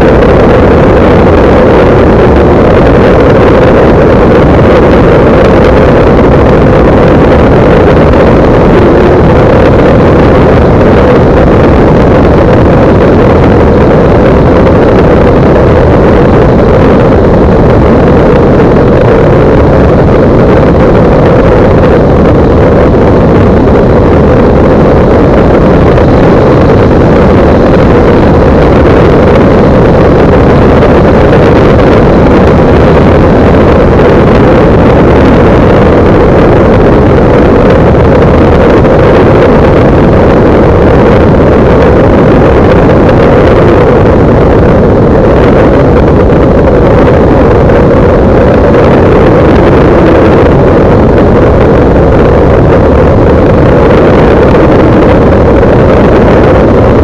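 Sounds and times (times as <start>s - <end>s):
light aircraft engine and propeller: 0.0s - 55.1s
wind rush on microphone: 0.0s - 57.0s.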